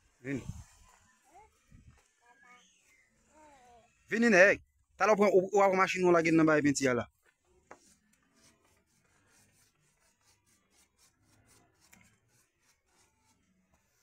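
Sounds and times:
paintbrush rubbing on wood: 7.6s - 14.0s.

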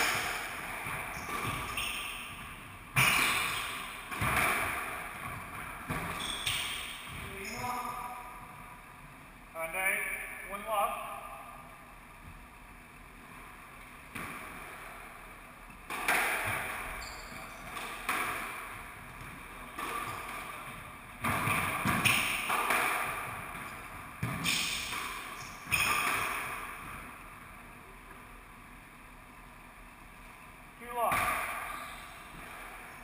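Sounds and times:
ball smacking court walls: 0.0s - 7.9s, 14.1s - 27.4s, 30.9s - 32.9s
racket striking squash ball: 0.0s - 8.6s, 14.1s - 15.2s, 15.8s - 27.4s, 31.0s - 32.9s.

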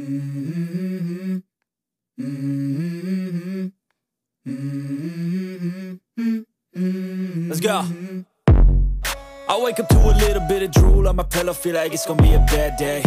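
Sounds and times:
hummed vocal phrase: 4.5s - 8.3s.

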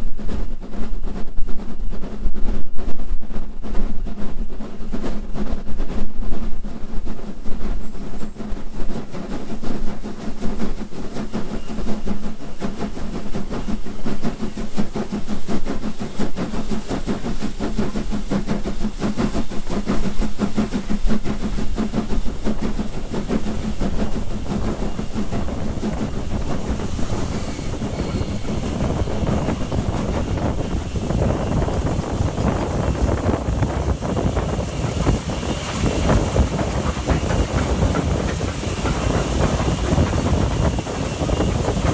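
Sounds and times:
steam locomotive exhaust chuffs: 0.0s - 41.9s
wheels clicking over rail joints: 0.1s - 41.9s
wind on microphone: 17.2s - 41.9s.

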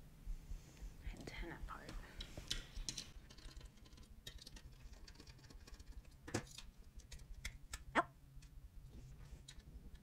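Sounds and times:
small parts and tools clicking on table: 2.2s - 8.6s.

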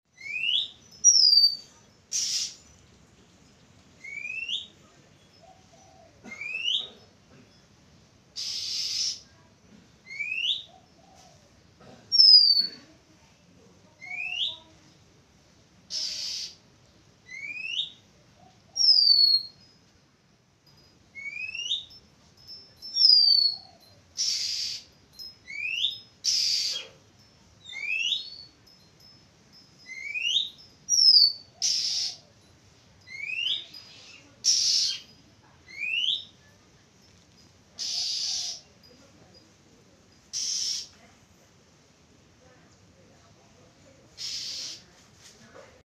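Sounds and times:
bird whistling song: 0.1s - 2.7s, 4.0s - 4.8s, 8.4s - 9.3s, 10.0s - 10.7s, 12.2s - 12.7s, 14.0s - 14.7s, 15.9s - 16.6s, 17.2s - 18.0s, 18.7s - 19.6s, 21.2s - 22.0s, 22.9s - 26.9s, 27.6s - 28.5s, 29.8s - 32.2s, 33.0s - 35.1s, 35.7s - 36.4s, 37.8s - 38.7s, 40.3s - 40.9s, 44.2s - 44.8s
harsh rasping bird notes: 1.4s - 2.7s, 8.4s - 9.3s, 15.9s - 16.6s, 24.2s - 24.9s, 37.8s - 38.7s, 40.3s - 40.9s, 44.2s - 44.9s.

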